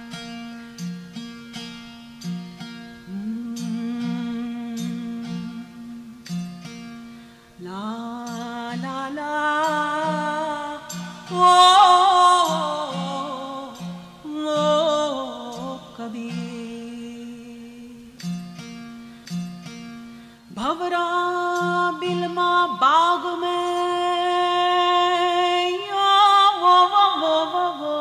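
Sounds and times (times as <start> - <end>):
person singing wavering notes: 3.0 - 6.9, 7.6 - 18.6, 20.5 - 28.0.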